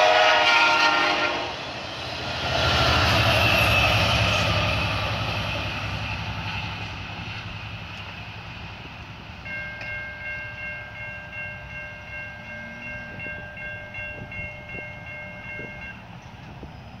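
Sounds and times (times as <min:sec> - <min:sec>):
electronic crossing bell ringing: 0:09.4 - 0:16.1.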